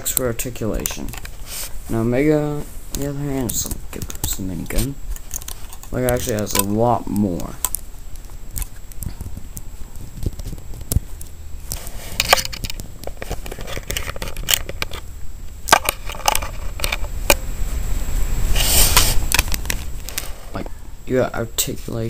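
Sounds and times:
microphone handling noise: 0.0 - 15.0.

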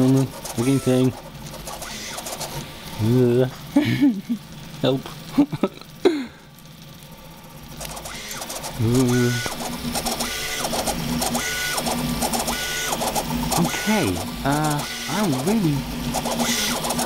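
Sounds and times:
stepper motors whining: 0.0 - 17.0.

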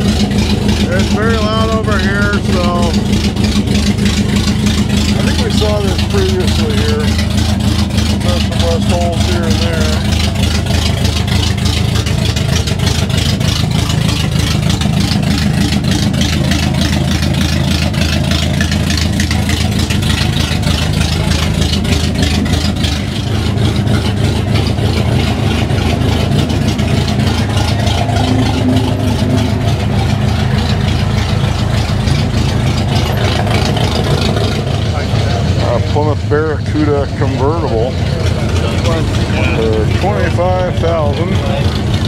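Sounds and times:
engine idling: 0.0 - 42.0.

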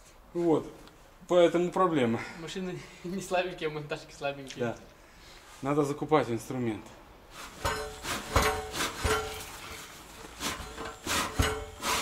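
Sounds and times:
metal tools clanking on wheel rim: 7.5 - 11.8.

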